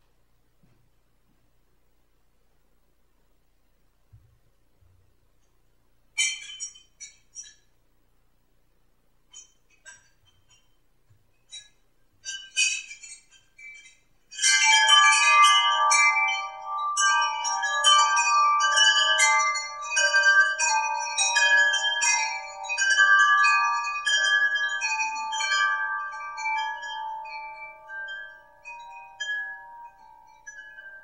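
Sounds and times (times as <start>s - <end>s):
chimes ringing: 14.4s - 31.0s.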